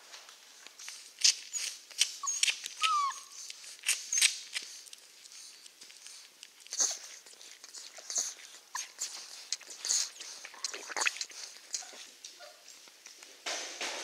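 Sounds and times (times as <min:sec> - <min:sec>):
puppies suckling: 0:00.6 - 0:13.2
puppy whimper: 0:01.2 - 0:04.4, 0:06.6 - 0:12.7.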